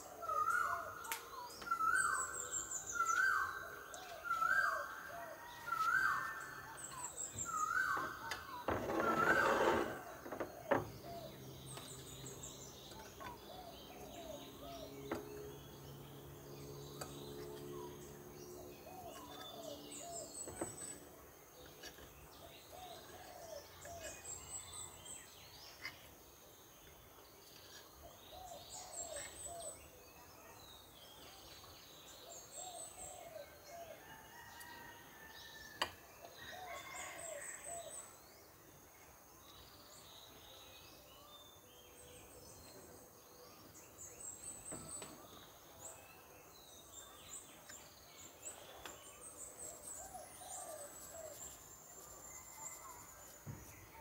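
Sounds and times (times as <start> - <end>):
lower bird calls: 0.0 - 15.2.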